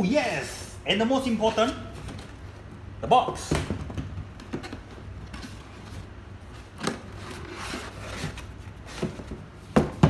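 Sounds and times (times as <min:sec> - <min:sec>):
cardboard rubbing and scraping: 0:07.1 - 0:09.3.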